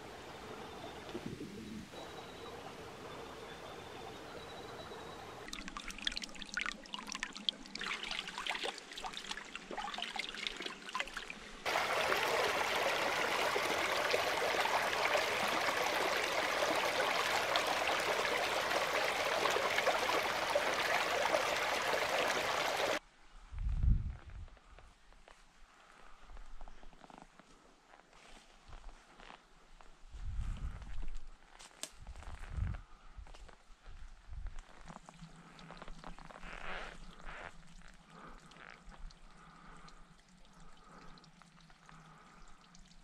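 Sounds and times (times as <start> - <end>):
stream water over rocks: 5.4 - 23.0.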